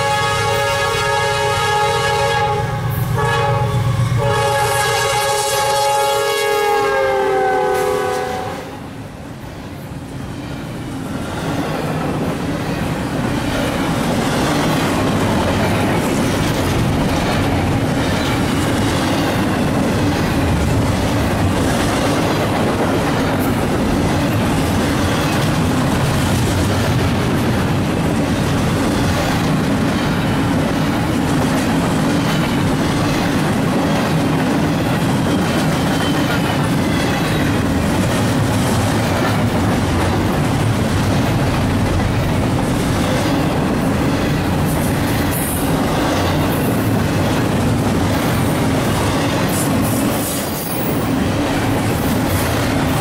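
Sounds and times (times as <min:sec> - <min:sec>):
train horn chord: 0:00.0 - 0:08.9
train wheels clattering: 0:10.4 - 0:53.0.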